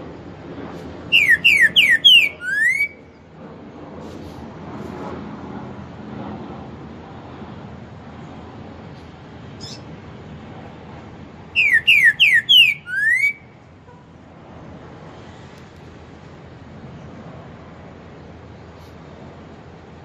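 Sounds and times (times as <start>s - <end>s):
bird whistled song: 1.1s - 3.2s, 9.6s - 9.8s, 11.6s - 13.6s.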